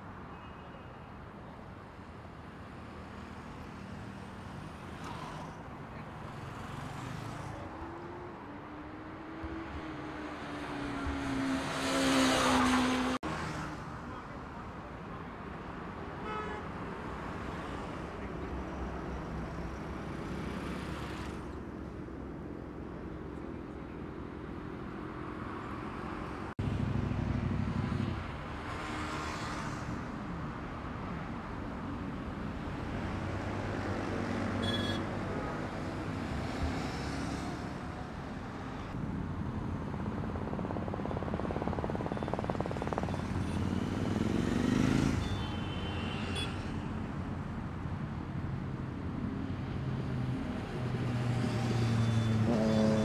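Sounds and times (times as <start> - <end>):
traffic noise: 0.0 - 53.0
motorcycle engines revving: 4.9 - 13.7, 41.2 - 46.4, 50.6 - 53.0.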